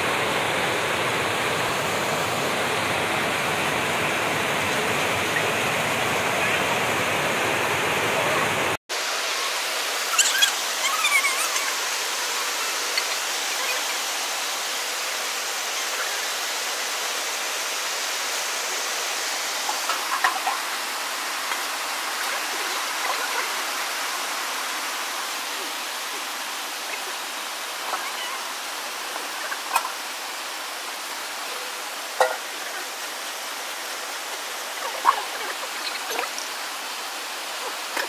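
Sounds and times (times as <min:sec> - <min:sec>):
water splashing from a pot: 0:32.2 - 0:32.7.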